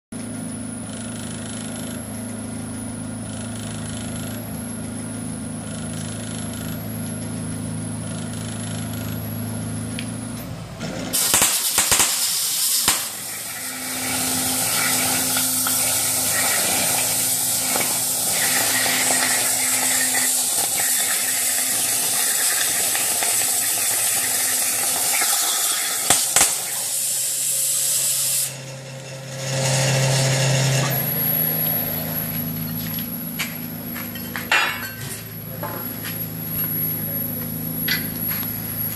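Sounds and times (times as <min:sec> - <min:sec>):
low electrical hum: 0:00.2 - 0:38.9
plasma torch cutting hiss: 0:11.1 - 0:32.6.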